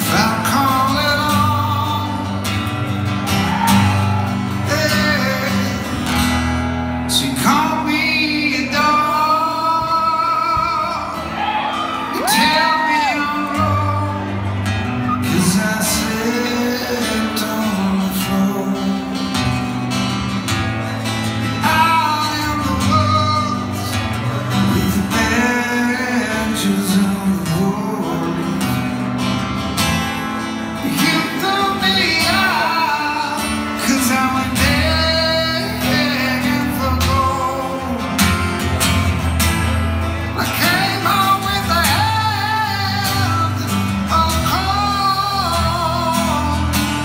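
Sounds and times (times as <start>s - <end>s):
man singing: 0.0s - 11.4s, 12.0s - 47.0s
acoustic guitar: 0.0s - 47.0s.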